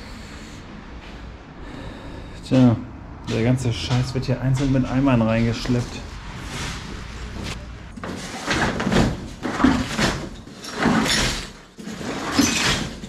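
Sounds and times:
footsteps crunching through rubble: 3.2 - 6.1.

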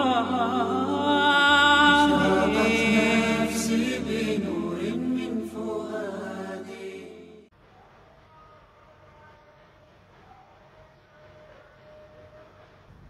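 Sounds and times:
low steady drone: 0.0 - 6.2
person singing devotional song: 0.0 - 7.3.

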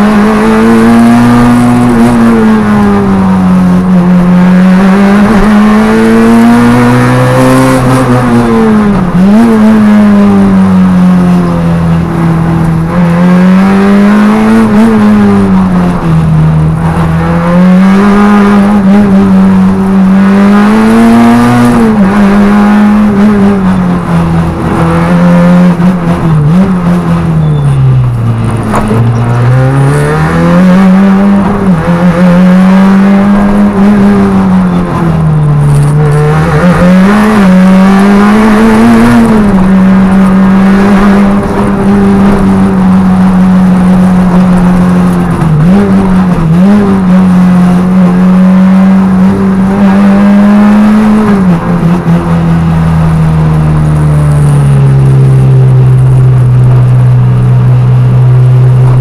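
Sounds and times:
rally car engine at high revs: 0.0 - 59.0.

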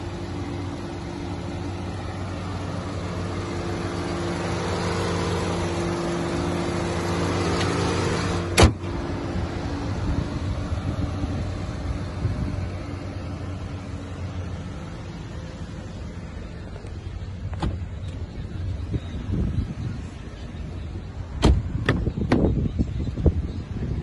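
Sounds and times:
car engine idling: 0.0 - 24.0
car bonnet slamming shut: 8.4 - 9.0, 17.5 - 17.9, 21.4 - 22.5.

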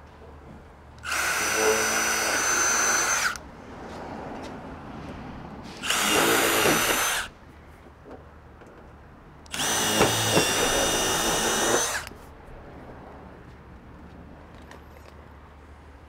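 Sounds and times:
impact driver whining: 1.0 - 3.4, 5.8 - 7.3, 9.5 - 12.1.

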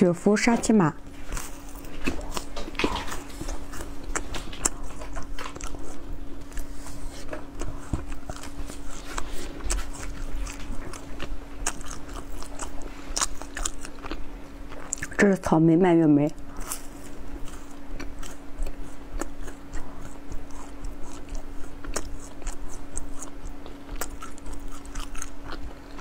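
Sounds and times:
crisp snack crunching: 7.6 - 15.2, 16.4 - 26.0.

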